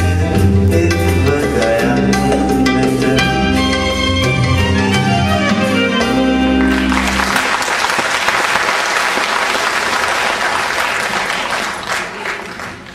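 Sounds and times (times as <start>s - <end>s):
audience applauding: 6.6s - 12.9s.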